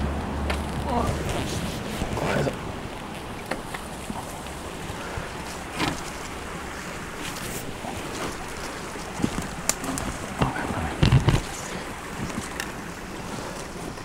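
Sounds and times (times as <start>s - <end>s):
bush branches rustling: 0.0s - 14.0s
wind buffeting microphone: 0.0s - 14.0s.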